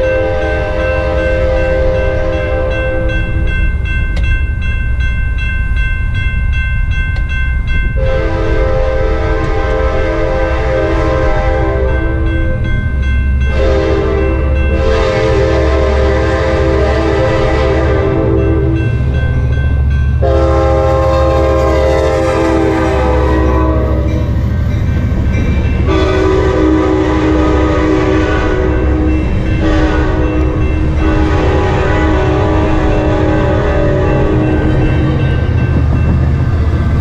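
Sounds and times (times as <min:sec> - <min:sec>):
train air horn blasts: 0:00.0 - 0:03.1, 0:08.0 - 0:12.6, 0:13.5 - 0:18.8, 0:20.2 - 0:24.3, 0:25.8 - 0:34.8
low rumble of train: 0:00.0 - 0:37.0.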